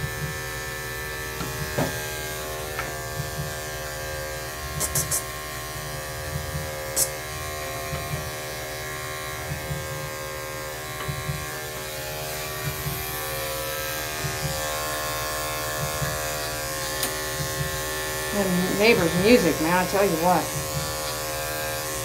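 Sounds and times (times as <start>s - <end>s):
electric clippers buzzing: 0.0s - 22.0s
faint bass thumping through wall: 11.0s - 11.6s.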